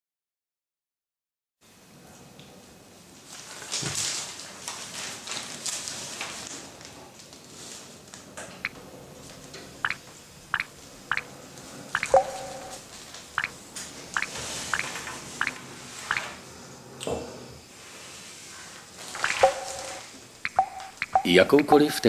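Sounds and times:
newspaper rustling: 3.3 - 6.7
water drops falling: 10.6 - 11.2, 12.0 - 12.7, 14.2 - 16.3, 19.2 - 21.7.

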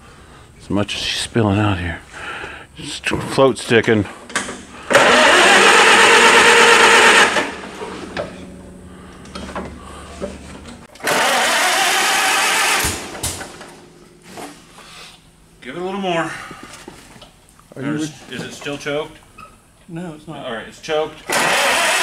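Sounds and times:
tractor engine cranked by starter: 4.1 - 14.5, 21.2 - 22.0.

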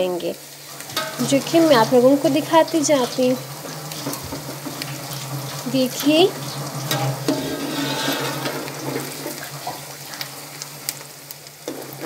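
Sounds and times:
onions sizzling in oil: 0.0 - 12.0
metal spatula scraping pot: 0.7 - 9.9, 11.7 - 12.0.

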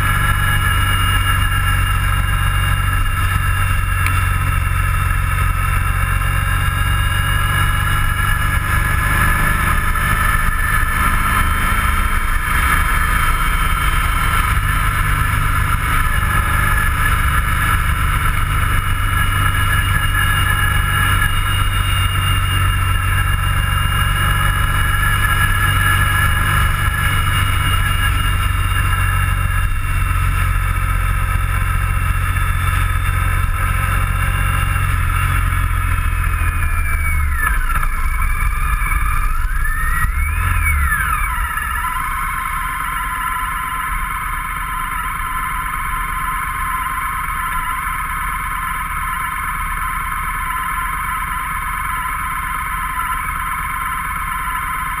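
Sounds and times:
steady whine: 0.0 - 55.0
vehicle engine and road rumble: 0.0 - 55.0.

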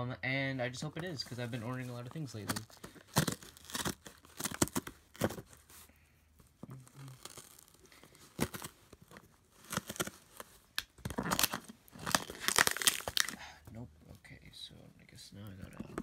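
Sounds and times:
scissors tearing tape and paper: 2.5 - 5.3, 9.6 - 13.4.

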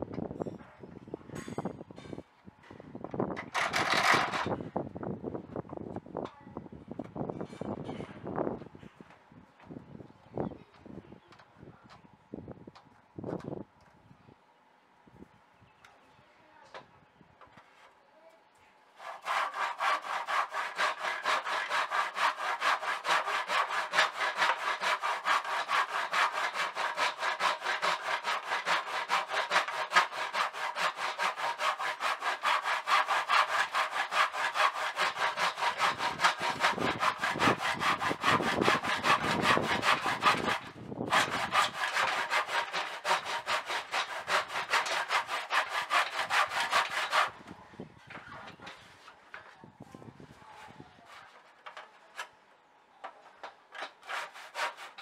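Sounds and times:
hand saw cutting wood: 3.5 - 4.6, 19.0 - 47.5, 53.7 - 55.0.

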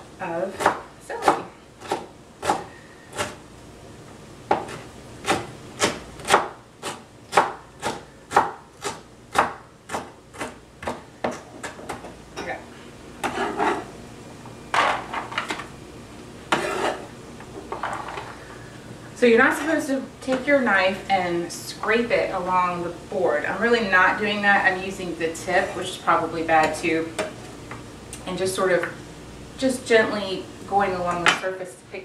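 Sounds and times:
cleaver chopping on wooden board: 4.5 - 12.0
blade scraping across board: 16.5 - 17.1.

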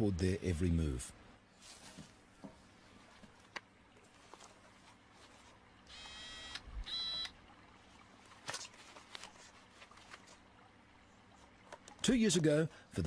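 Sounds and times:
faint electronic buzzing tone: 5.8 - 7.5.

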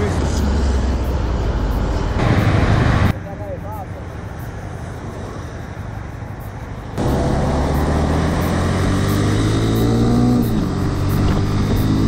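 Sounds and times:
passing traffic: 0.0 - 12.0
motorcycle engine under way: 7.0 - 12.0.

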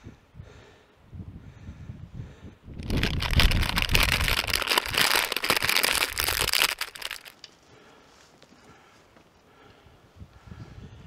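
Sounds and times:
plastic snack packet crinkling: 2.8 - 7.4.

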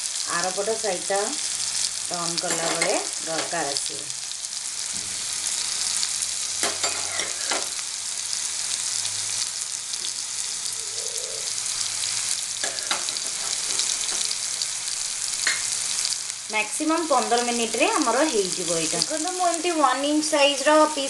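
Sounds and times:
chicken sizzling in oil: 0.0 - 21.0
metal spoon clinking on pan: 2.5 - 3.0, 6.6 - 7.6.

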